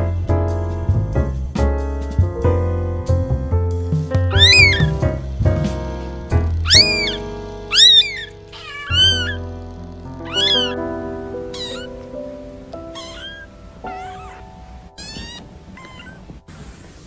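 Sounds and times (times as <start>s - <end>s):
kitten mewing: 4.3s - 5.0s, 6.6s - 9.5s, 10.2s - 10.8s, 11.5s - 12.0s, 13.0s - 16.3s.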